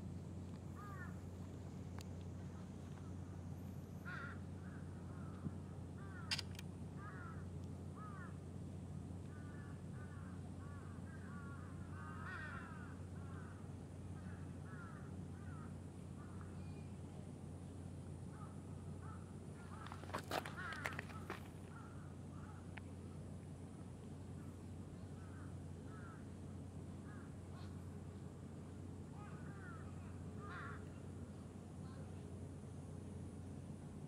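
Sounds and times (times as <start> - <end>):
steady low hum: 0.0 - 34.0
birds calling: 0.8 - 3.1, 18.3 - 22.7
sharp click: 6.3 - 6.7.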